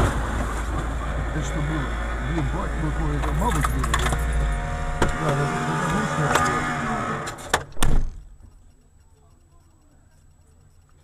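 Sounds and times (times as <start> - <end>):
pitched tones in car: 1.8 - 7.4
loud short thump: 7.5 - 8.2.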